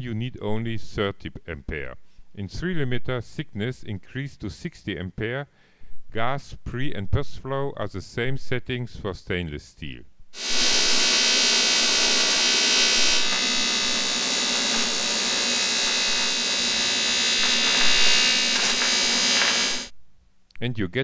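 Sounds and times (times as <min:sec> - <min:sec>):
welding arc buzzing: 0:10.4 - 0:20.0.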